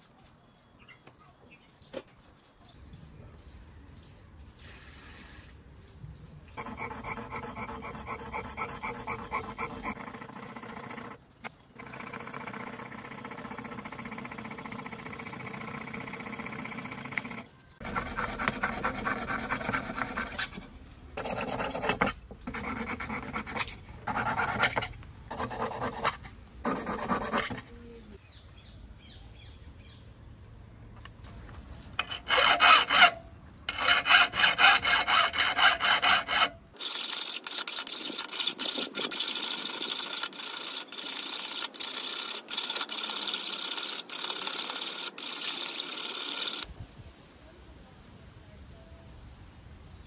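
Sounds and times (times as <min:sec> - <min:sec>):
hand file rasping: 0:06.6 - 0:11.2, 0:11.8 - 0:27.7, 0:32.0 - 0:46.7.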